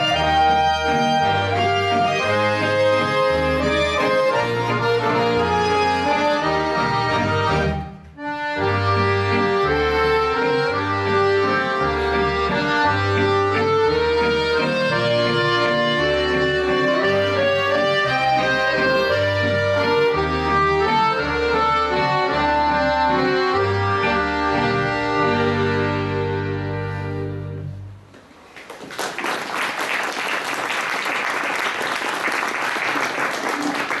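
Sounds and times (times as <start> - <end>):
accordion orchestra playing: 0.0 - 28.1
audience applause: 28.5 - 34.0.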